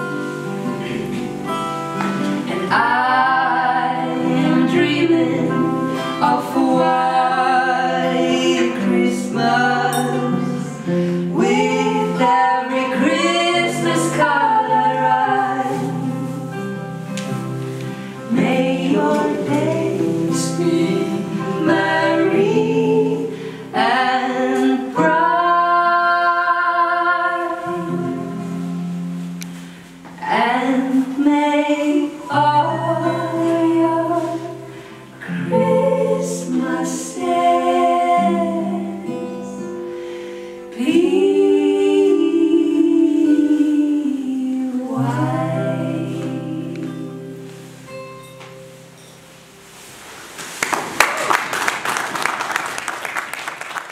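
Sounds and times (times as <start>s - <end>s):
strummed acoustic guitars: 0.0s - 42.2s, 44.8s - 50.6s
women singing together: 2.4s - 16.6s, 18.0s - 29.0s, 30.2s - 39.7s, 40.7s - 47.5s.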